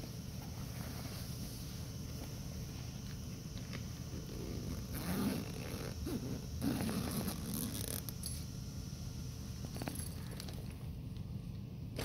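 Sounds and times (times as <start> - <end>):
zipper rasping open: 4.3 - 8.1.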